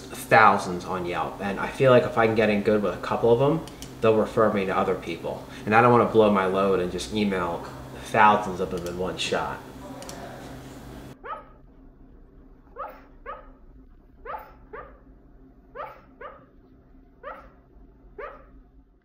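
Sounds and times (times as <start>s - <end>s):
dog whining: 9.8s - 11.6s, 12.7s - 13.6s, 14.2s - 15.0s, 15.8s - 16.5s, 17.2s - 17.6s, 18.2s - 18.5s.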